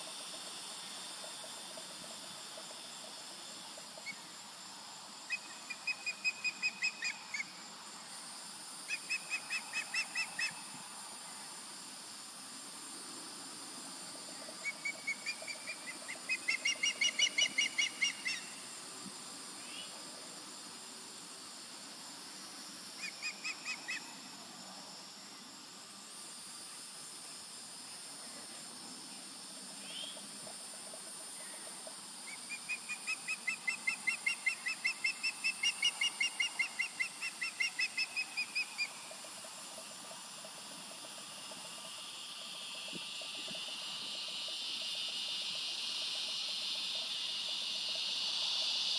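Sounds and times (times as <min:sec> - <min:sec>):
osprey chirping: 0:14.6 - 0:18.6.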